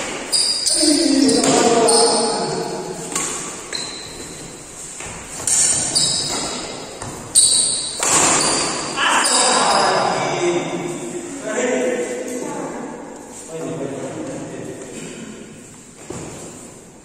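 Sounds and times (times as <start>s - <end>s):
shoes squeaking on court: 0.0s - 10.3s
racket hitting shuttlecock: 1.2s - 4.0s, 5.0s - 9.5s.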